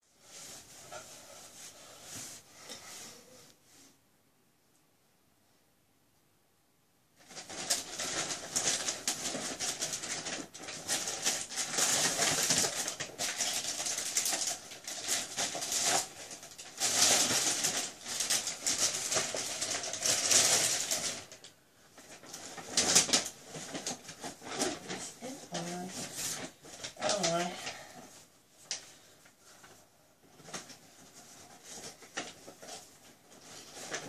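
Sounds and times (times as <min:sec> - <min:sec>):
paper and plastic bags rustling: 0:07.2 - 0:34.0.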